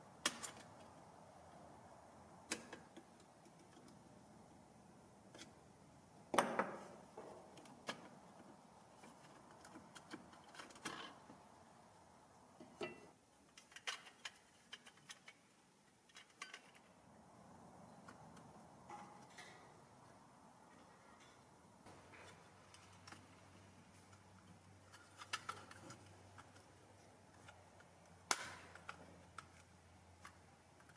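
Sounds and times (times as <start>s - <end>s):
light metal clicks and scrapes: 12.6s - 17.0s, 17.9s - 30.9s.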